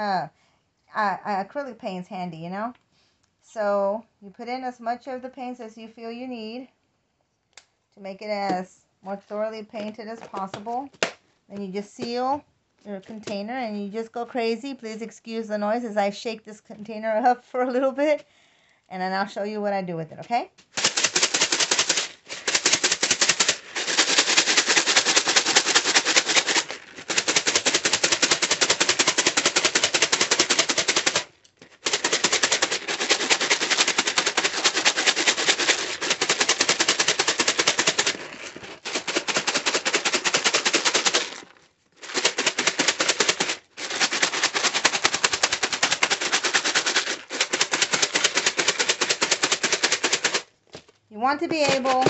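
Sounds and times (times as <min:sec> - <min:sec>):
bedding rattling in plastic container: 0:09.7 - 0:11.2, 0:20.6 - 0:52.0.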